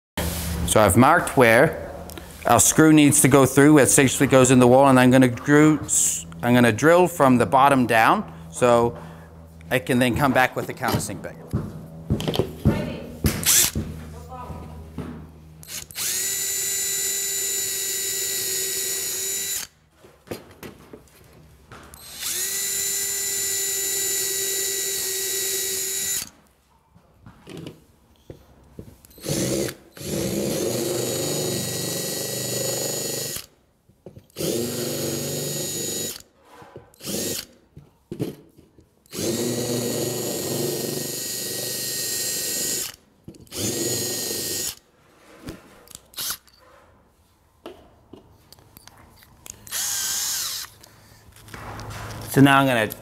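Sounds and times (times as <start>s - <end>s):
cordless drill boring into wood: 13.4s - 13.8s, 15.6s - 19.7s, 22.0s - 26.3s, 29.1s - 33.5s, 34.3s - 36.3s, 37.0s - 37.6s, 39.1s - 44.8s, 46.1s - 46.5s, 49.6s - 50.9s
countersink bit grinding wood: 13.4s - 13.8s, 15.6s - 19.7s, 21.9s - 26.3s, 29.0s - 33.5s, 34.3s - 36.2s, 39.1s - 44.8s, 49.5s - 50.9s.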